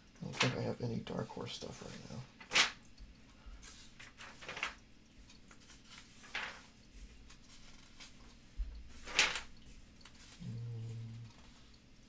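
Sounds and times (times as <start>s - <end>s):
paper pages turning: 3.6s - 10.4s
low hum: 10.3s - 12.0s.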